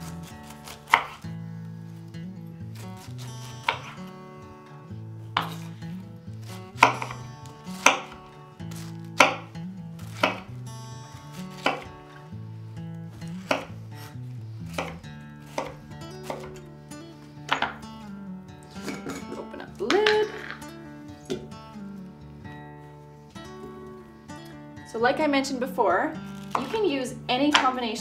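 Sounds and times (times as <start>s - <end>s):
knife chopping on wooden board: 0.4s - 1.2s, 3.5s - 4.0s, 5.4s - 5.7s, 6.8s - 7.2s, 7.8s - 10.5s, 11.5s - 11.9s, 13.4s - 13.8s, 14.7s - 16.6s, 17.5s - 17.8s, 26.4s - 26.8s.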